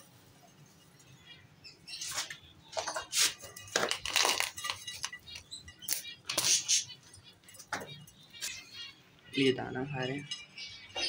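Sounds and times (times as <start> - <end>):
grain rattling in plastic jar: 3.7 - 5.4.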